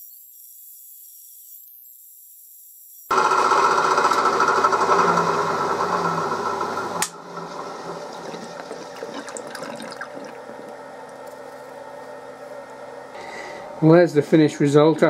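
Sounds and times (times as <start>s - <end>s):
milling machine cutting: 3.1s - 9.0s
coolant pouring: 7.2s - 11.3s.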